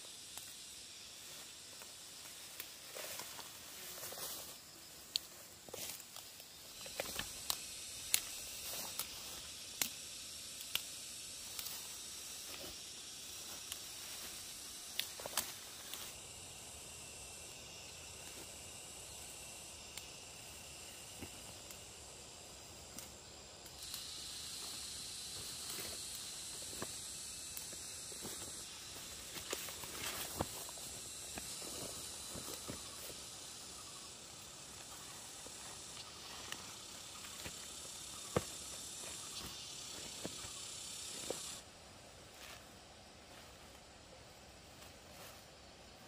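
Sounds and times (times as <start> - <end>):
insects buzzing: 0.0 - 46.0
plants snapping and rustling: 13.4 - 16.1.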